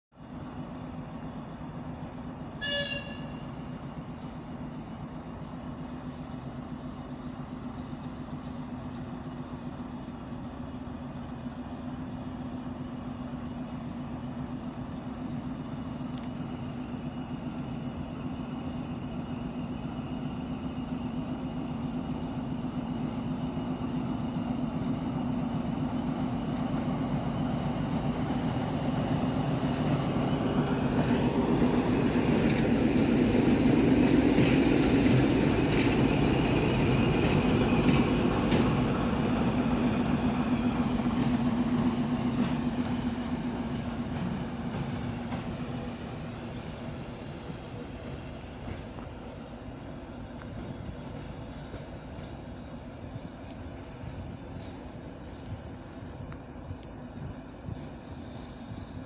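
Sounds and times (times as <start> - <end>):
diesel locomotive engine drone: 0.0 - 59.0
short high horn toot: 2.6 - 3.5.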